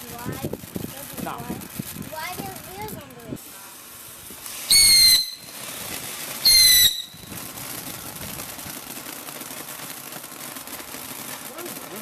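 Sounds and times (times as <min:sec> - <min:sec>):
sparks hissing and crackling: 0:00.0 - 0:12.0
firework whistle: 0:04.4 - 0:08.5.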